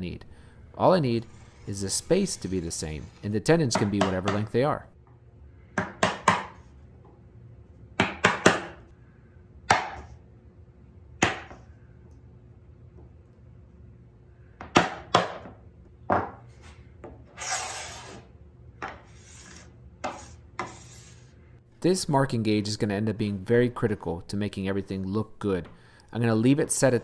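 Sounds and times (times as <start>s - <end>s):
chisel scraping along wood: 1.0s - 4.1s, 19.1s - 21.3s.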